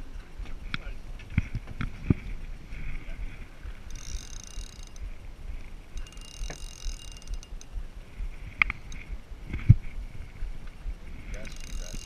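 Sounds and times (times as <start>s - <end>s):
wind rumble on microphone: 0.0s - 12.0s
fishing reel whirring: 2.8s - 9.6s, 11.0s - 12.0s.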